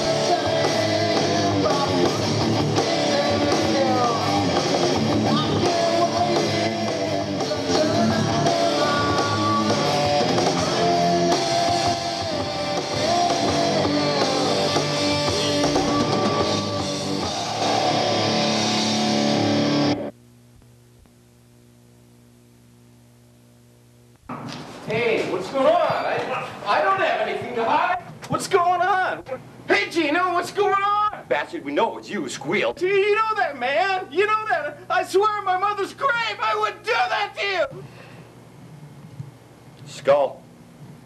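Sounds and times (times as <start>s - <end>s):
man singing: 0.0s - 18.0s
rock band playing: 0.0s - 20.1s
faint steady hum: 13.8s - 41.0s.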